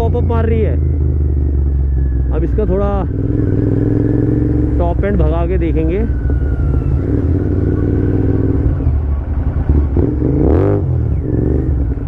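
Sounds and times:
motorcycle engine revving hard: 3.0s - 8.8s, 9.6s - 12.0s.

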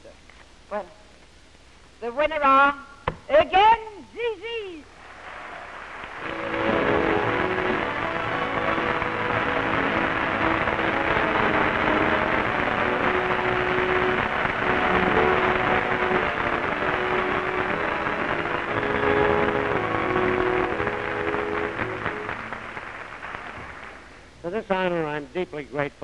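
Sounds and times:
audience applauding: 4.9s - 24.3s
music playing: 6.1s - 24.3s.

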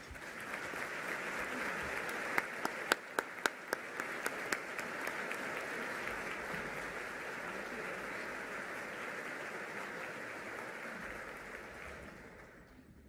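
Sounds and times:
audience applauding: 0.0s - 12.9s.

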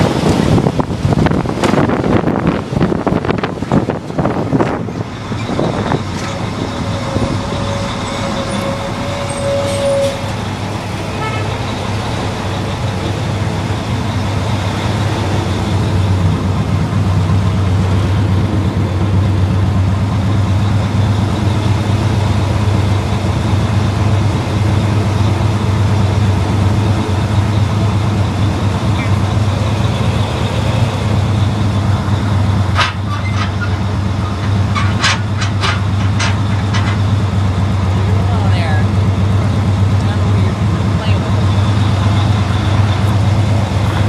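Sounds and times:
fire truck engine running: 0.0s - 44.0s
road and wind noise: 0.0s - 44.0s
steady tone: 3.9s - 32.8s.

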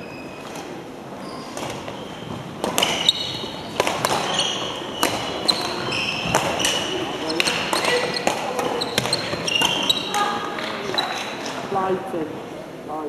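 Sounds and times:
shoes squeaking on court floor: 0.0s - 11.7s
racket hitting ball: 2.5s - 11.0s.

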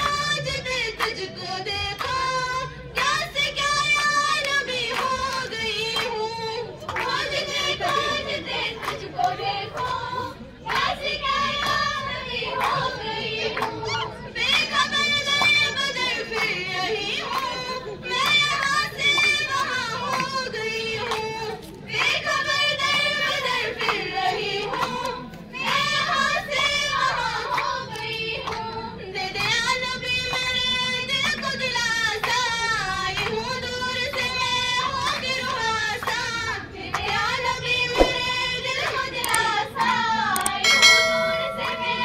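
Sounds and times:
girls singing together: 0.0s - 30.1s, 33.2s - 42.0s
rhythmic hand-clapping: 0.0s - 37.2s, 38.0s - 42.0s
hand claps: 2.0s - 2.3s, 3.9s - 8.2s, 8.8s - 10.0s, 18.2s - 24.1s, 38.0s - 38.3s, 38.9s - 42.0s.

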